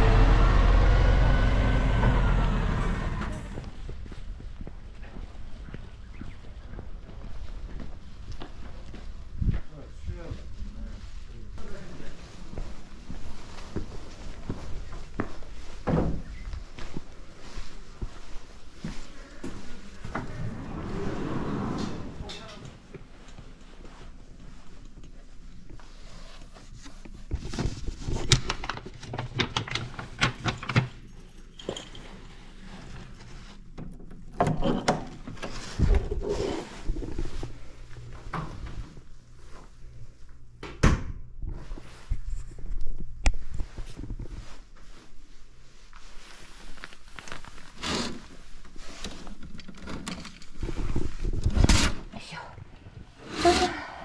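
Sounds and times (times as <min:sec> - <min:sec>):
door being opened: 0:20.1 - 0:22.7
curtain fabric rustling: 0:43.6 - 0:49.4
curtain runners scraping rail: 0:47.7 - 0:48.4.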